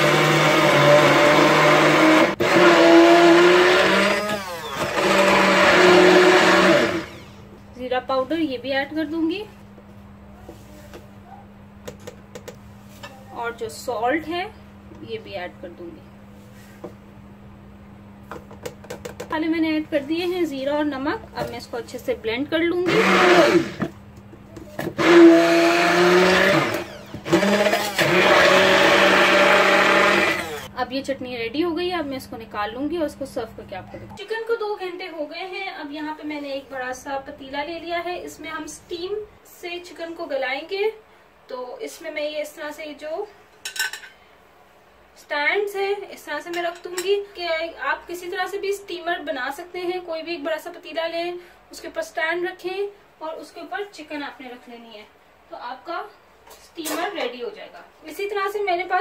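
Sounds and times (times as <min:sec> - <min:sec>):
stick blender whirring: 0:00.0 - 0:07.6, 0:22.8 - 0:24.0, 0:24.7 - 0:30.7.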